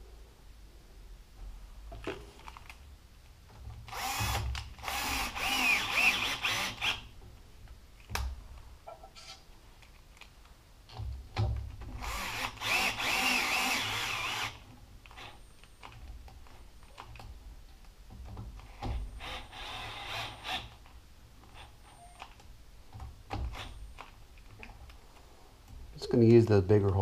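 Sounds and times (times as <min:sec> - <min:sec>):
cordless drill running: 0:03.9 - 0:07.0, 0:12.0 - 0:14.6, 0:19.2 - 0:20.7.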